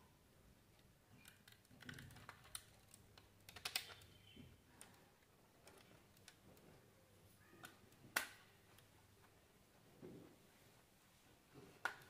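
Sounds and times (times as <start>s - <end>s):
faint clicks and scrapes of wires: 0.7s - 9.4s.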